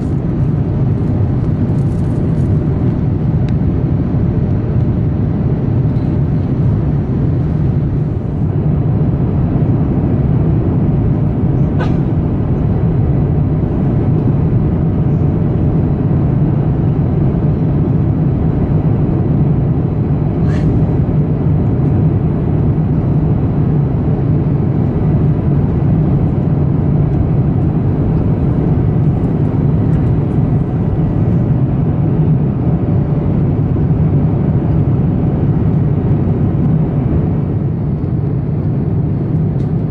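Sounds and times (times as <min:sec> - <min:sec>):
airplane cabin drone: 0:00.0 - 0:39.9.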